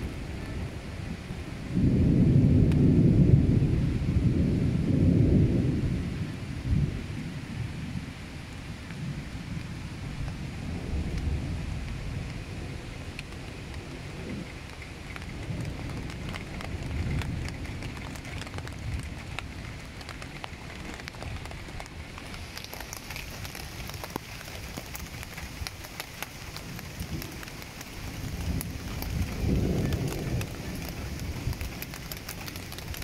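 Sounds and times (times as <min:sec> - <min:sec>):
heavy rain falling: 0:00.0 - 0:33.0
low thunder rumbling: 0:00.0 - 0:33.0
raindrops tapping: 0:02.6 - 0:03.0, 0:08.6 - 0:33.0.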